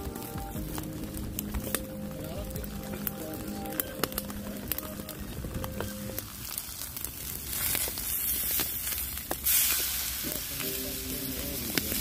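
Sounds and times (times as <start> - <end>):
steak sizzling on hot slate: 0.0 - 4.9, 5.5 - 12.0
crackling wood fire: 0.0 - 12.0.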